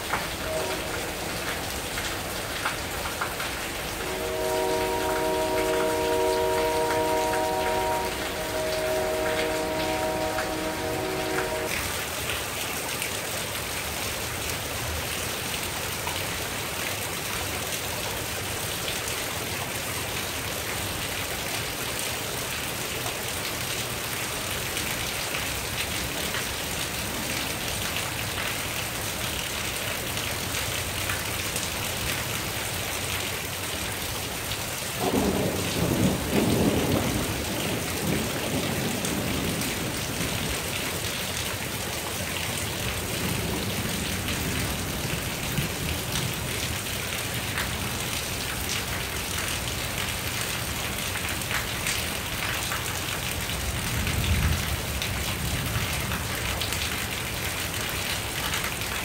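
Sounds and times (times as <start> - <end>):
steady rain: 0.0 - 59.0
thunder rumble: 35.0 - 40.5.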